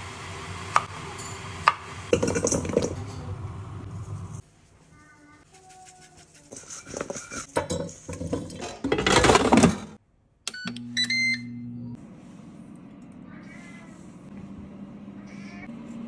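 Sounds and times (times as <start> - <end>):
air fryer humming: 0.0 - 4.0, 10.5 - 16.0
air fryer beeps: 10.5 - 12.0.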